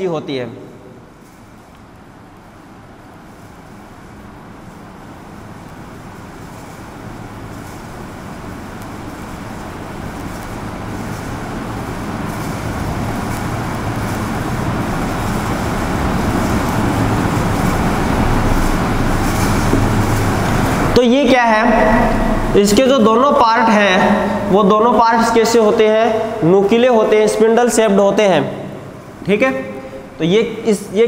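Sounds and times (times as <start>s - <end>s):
low hum: 4.7s - 27.2s
vehicle engine rumble and road noise: 6.4s - 21.0s.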